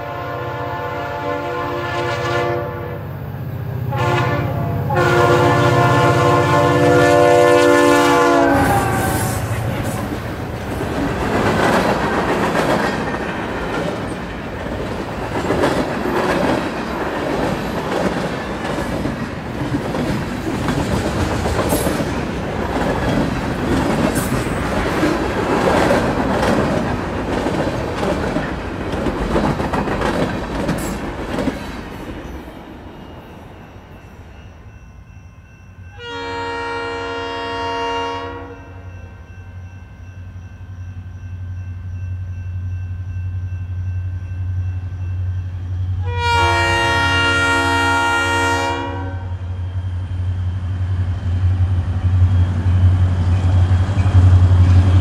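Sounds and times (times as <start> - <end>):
distant locomotive air horn: 0.0 - 3.2, 3.8 - 10.1, 35.9 - 39.0, 46.0 - 49.5
freight train wheels rumbling on rails: 0.0 - 35.2, 38.9 - 55.0.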